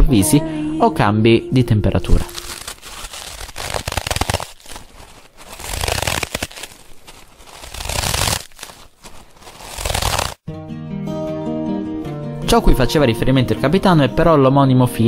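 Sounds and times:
rushing noise with crackling: 0:02.4 - 0:10.4
guitar tune: 0:10.5 - 0:13.7.

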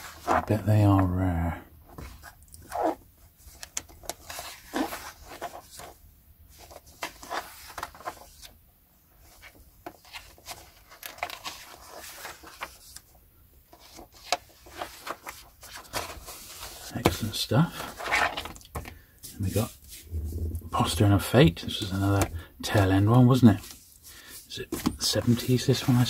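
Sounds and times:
books and magazines rustling: 0:01.9 - 0:08.6, 0:09.2 - 0:26.0.

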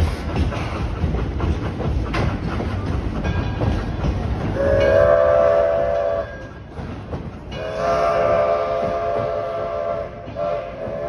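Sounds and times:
steam locomotive rumbling: 0:00.0 - 0:11.0
steam whistle blasts: 0:04.6 - 0:06.5, 0:07.6 - 0:11.0.

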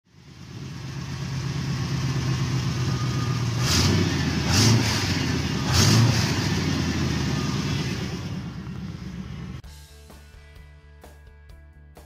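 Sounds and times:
vehicle engine running: 0:00.1 - 0:09.7.

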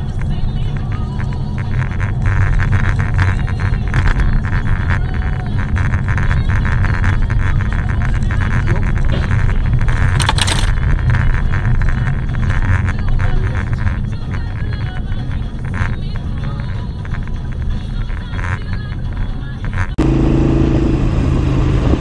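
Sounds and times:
car interior road rumble: 0:00.0 - 0:22.0.

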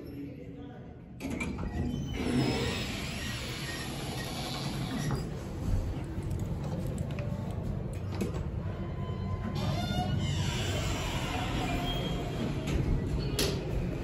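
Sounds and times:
elevator low rumble: 0:02.8 - 0:14.0.

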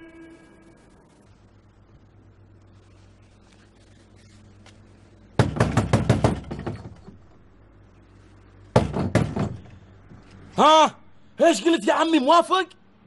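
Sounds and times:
knocking on wooden door: 0:05.4 - 0:07.0, 0:08.8 - 0:09.6.

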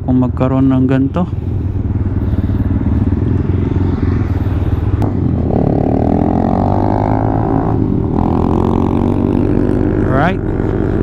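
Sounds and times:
motorcycle engine running: 0:00.1 - 0:11.0.

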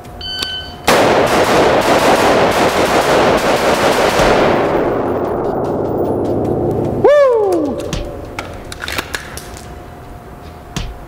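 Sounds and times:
rifle shots echoing indoors: 0:00.8 - 0:06.3.

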